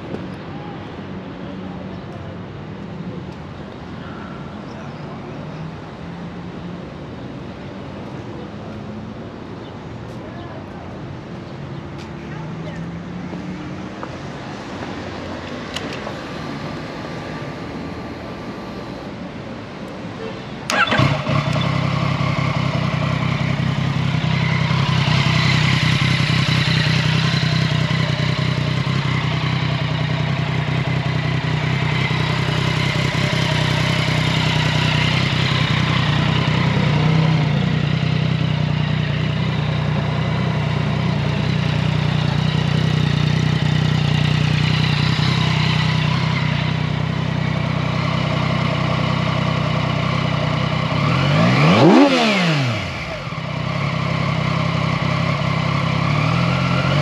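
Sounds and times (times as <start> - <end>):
motorcycle engine cranking: 20.7 - 22.8
motorcycle engine idling: 20.7 - 57.0.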